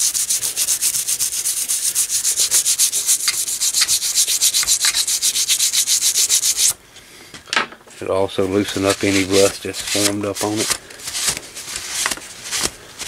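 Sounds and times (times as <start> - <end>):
toothbrush scrubbing metal case: 0.0 - 6.7.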